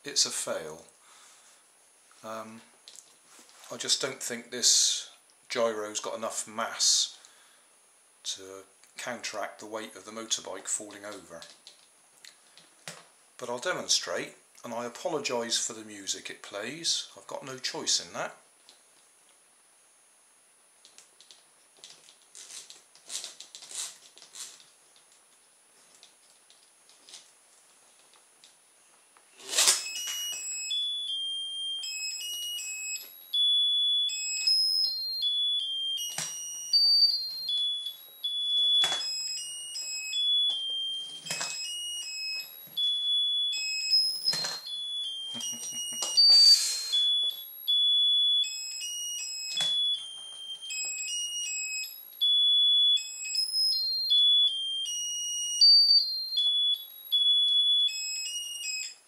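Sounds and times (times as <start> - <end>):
tinny electronic toy tune: 29.5 - 59.0.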